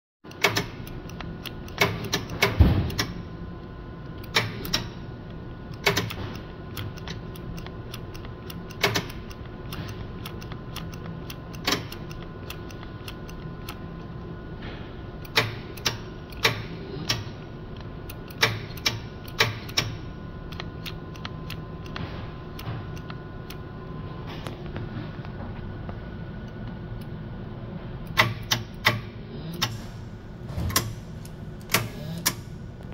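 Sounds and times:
switch and relay clicks: 0.3 - 3.2, 4.0 - 5.0, 5.7 - 14.2, 15.2 - 23.6, 28.0 - 29.9, 30.7 - 32.6
faint hum: 0.3 - 32.9.

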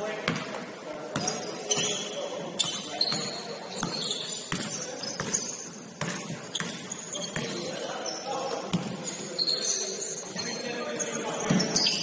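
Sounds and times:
sneaker squeaks: 1.1 - 12.0
basketball bouncing: 3.1 - 7.6, 8.7 - 9.0.

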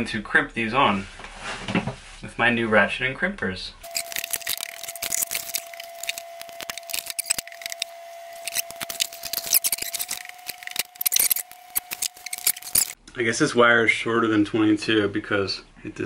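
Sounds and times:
handling small parts: 3.8 - 13.0.

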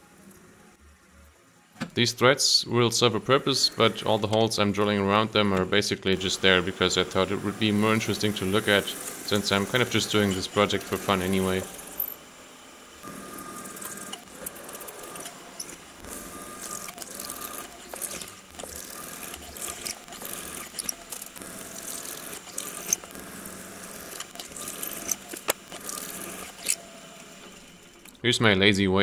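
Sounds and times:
milling spindle hum: 0.0 - 28.3
metal chips crackling and ticking: 13.8 - 26.8.

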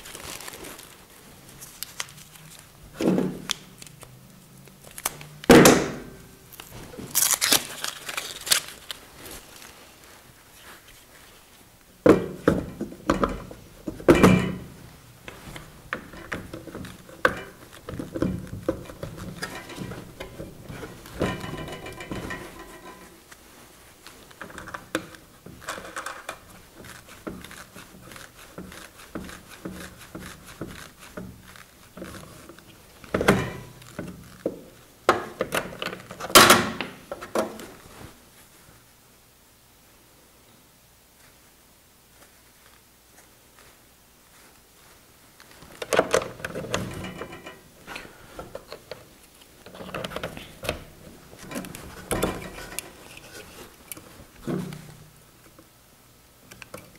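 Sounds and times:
clicks knocks and rattles of parts: 15.3 - 23.1, 24.3 - 37.7, 45.7 - 55.6.

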